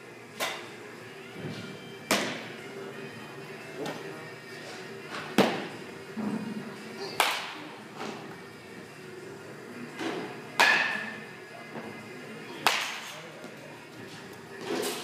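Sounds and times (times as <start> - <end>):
bat striking ball cracks: 2.1 - 2.4, 7.2 - 7.6, 10.6 - 11.2, 12.6 - 13.2.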